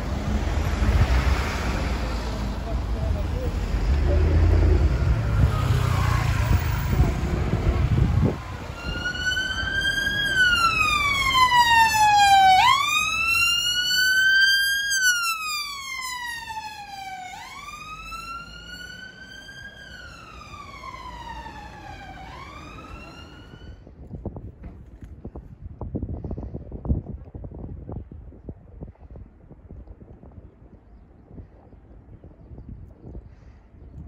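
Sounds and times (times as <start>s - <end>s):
ambulance siren wailing: 4.0s - 23.8s.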